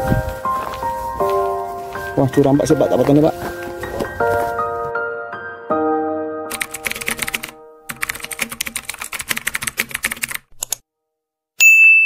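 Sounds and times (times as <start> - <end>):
held music notes: 0.0 - 8.5
keyboard typing clicks: 6.5 - 10.8.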